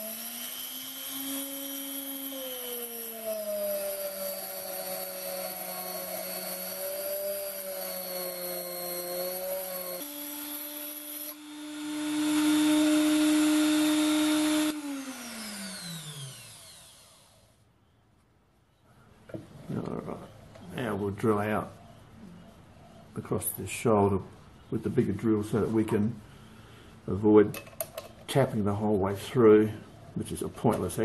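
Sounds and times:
rotary tool motor whine: 0.0s - 17.6s.

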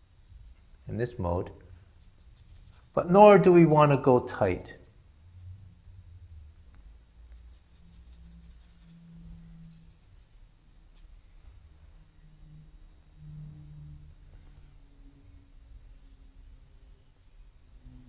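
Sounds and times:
paintbrush strokes scratching: 0.2s - 1.1s, 1.7s - 6.2s, 7.3s - 11.5s
low hum: 4.7s - 18.0s.

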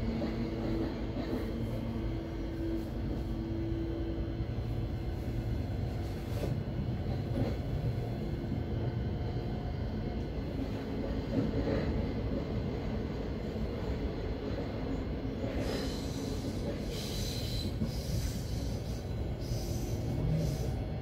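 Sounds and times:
train wheels rumbling on rails: 0.0s - 21.0s.

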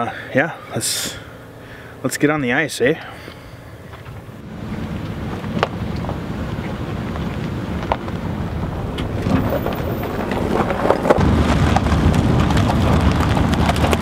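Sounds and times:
truck engine and tyres rumbling: 0.0s - 14.0s
wind buffeting microphone: 4.0s - 14.0s
clicks and crackles: 8.9s - 14.0s.

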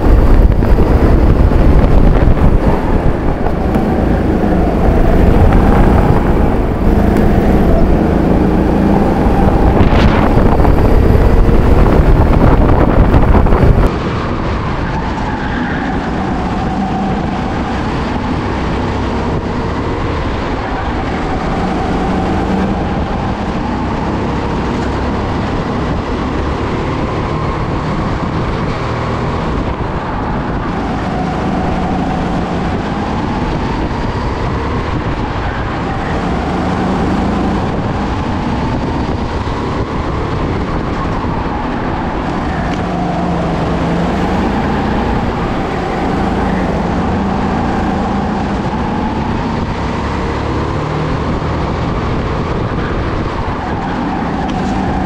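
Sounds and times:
kart engine revving: 0.0s - 55.0s.

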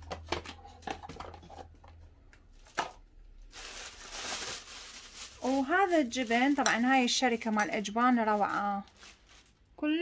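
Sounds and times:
packaging rustling: 2.6s - 9.7s.

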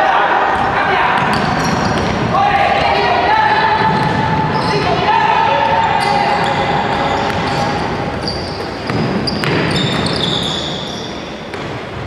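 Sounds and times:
sneakers squeaking on court: 0.5s - 3.0s, 3.6s - 12.0s
basketball bouncing: 0.6s - 5.0s, 5.6s - 10.4s.

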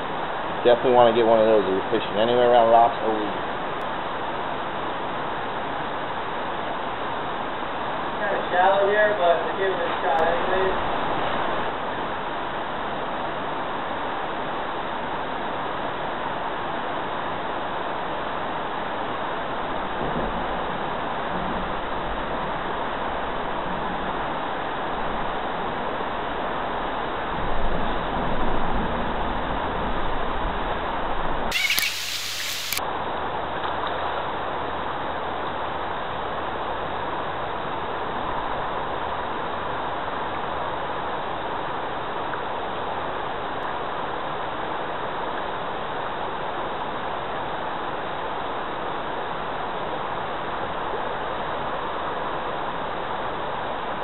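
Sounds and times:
short high call: 31.5s - 32.8s.

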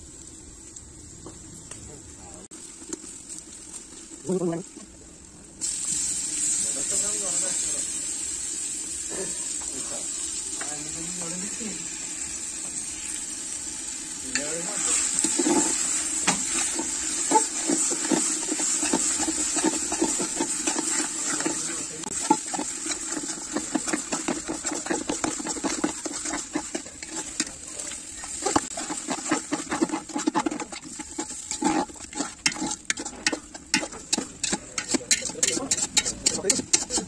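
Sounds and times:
frying sizzle: 0.0s - 37.0s
metal ladle scraping pot: 14.3s - 37.0s.

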